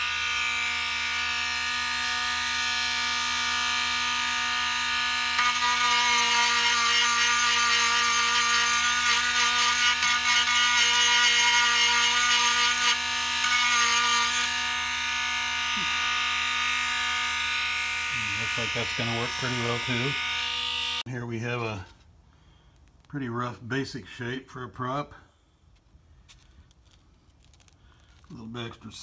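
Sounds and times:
rotary tool cutting wood: 0:00.0 - 0:21.0.

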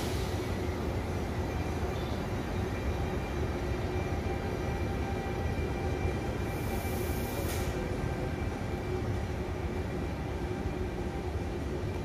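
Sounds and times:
electric locomotive humming: 0:00.0 - 0:12.0
brief hiss: 0:06.6 - 0:07.8.

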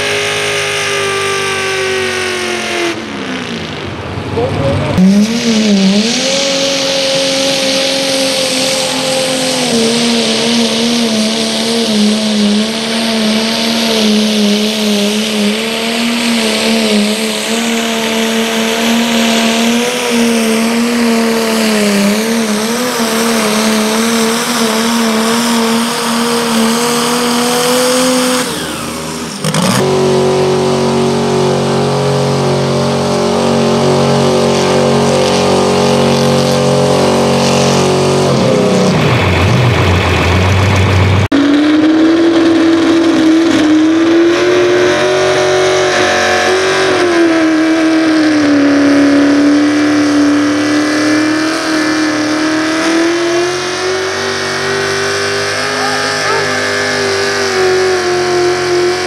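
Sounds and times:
pickup truck engine high revs: 0:00.0 - 0:59.0
tractor engine running flat out: 0:16.2 - 0:46.1.

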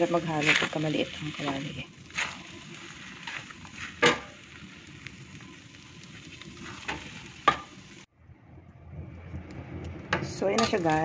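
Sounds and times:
steady sizzle: 0:00.0 - 0:08.1, 0:09.7 - 0:11.0
spatula scraping a pan: 0:00.4 - 0:04.6, 0:06.6 - 0:07.7.

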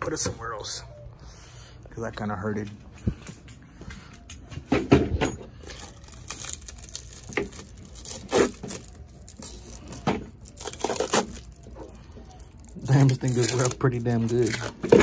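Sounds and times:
plastic film crinkling: 0:05.5 - 0:15.0.

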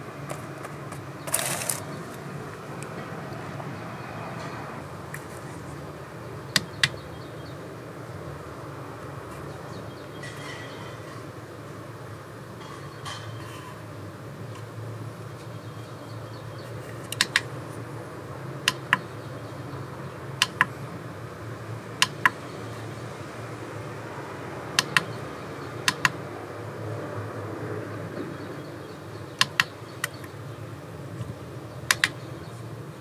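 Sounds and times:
charger buttons clicking: 0:06.5 - 0:07.0, 0:17.1 - 0:17.5, 0:18.7 - 0:19.1, 0:22.0 - 0:22.4, 0:24.8 - 0:25.2, 0:25.9 - 0:26.2, 0:29.4 - 0:30.4, 0:31.9 - 0:32.2.

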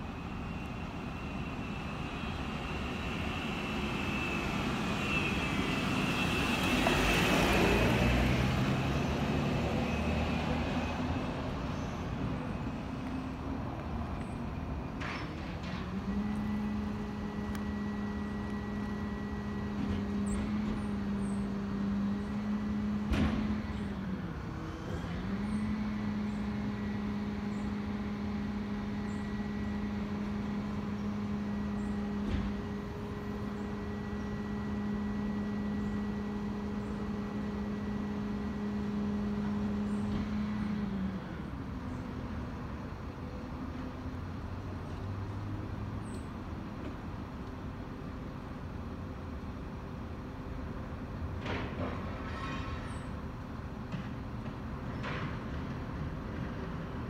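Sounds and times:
low engine hum: 0:00.0 - 0:57.0
vehicle passing: 0:01.6 - 0:13.5.

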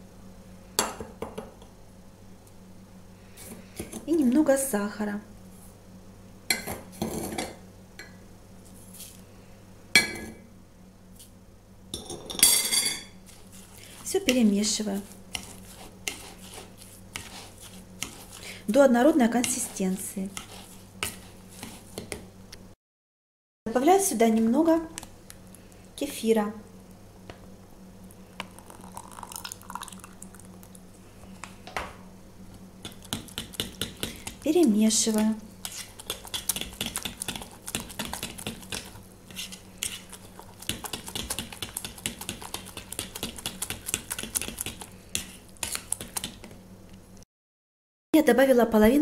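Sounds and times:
liquid pouring and splashing: 0:28.5 - 0:30.8.

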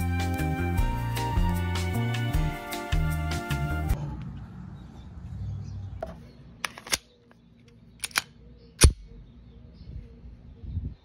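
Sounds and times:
magazine seating clicks: 0:06.6 - 0:07.1, 0:08.0 - 0:09.0
pistol slide clacks: 0:06.6 - 0:07.1, 0:08.0 - 0:09.0.

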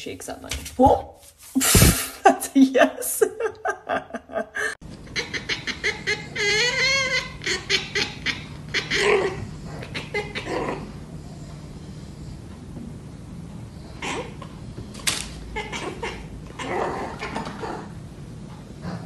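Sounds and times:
people laughing: 0:03.1 - 0:04.8.

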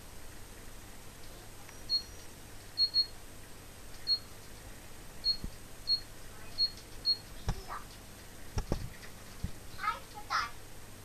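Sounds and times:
low steady hum: 0:00.0 - 0:11.0
short high-pitched beeps: 0:02.8 - 0:03.2, 0:04.1 - 0:04.3, 0:05.2 - 0:07.3.

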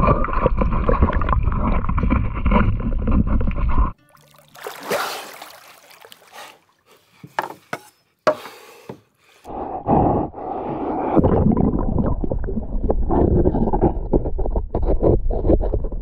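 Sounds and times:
water splashing: 0:03.3 - 0:07.3
water drips: 0:04.0 - 0:07.0
small knocks: 0:07.2 - 0:09.0
muffled underwater rumble: 0:10.6 - 0:16.0.

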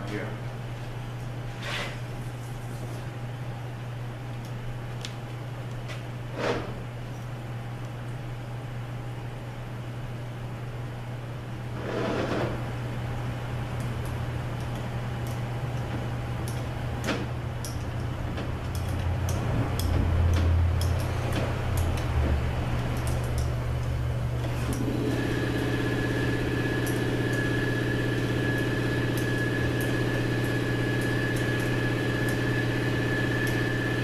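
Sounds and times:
workshop machine hum: 0:00.0 - 0:34.0
machine high whine: 0:24.4 - 0:34.0.

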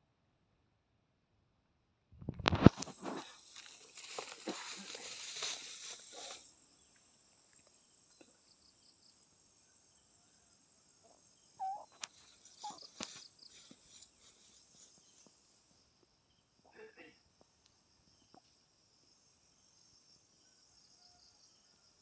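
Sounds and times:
crickets droning: 0:02.4 - 0:22.0
boots swishing through grass: 0:02.7 - 0:06.5
faint clicks: 0:11.9 - 0:12.4.

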